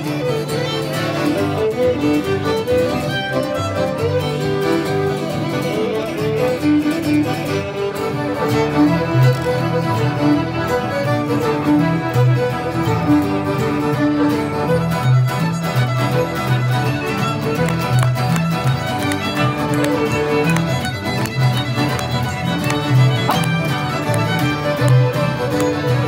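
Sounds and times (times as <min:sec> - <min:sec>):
fiddle: 0:00.0 - 0:26.0
strummed acoustic guitar: 0:00.0 - 0:26.0
upright bass: 0:05.4 - 0:26.0.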